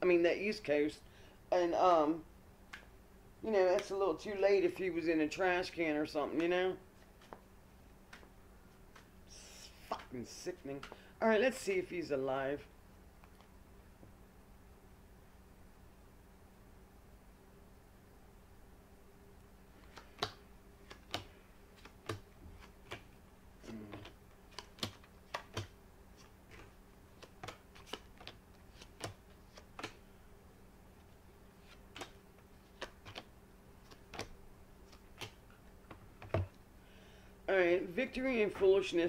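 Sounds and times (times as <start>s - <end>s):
cards clicking and tapping: 2.7s - 2.9s, 6.4s - 8.3s, 8.9s - 9.1s, 10.8s - 11.0s, 19.8s - 30.1s, 31.6s - 36.6s.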